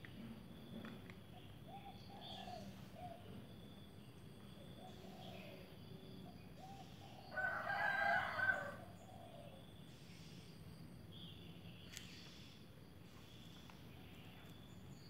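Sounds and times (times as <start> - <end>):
rooster crowing: 7.2 - 9.0.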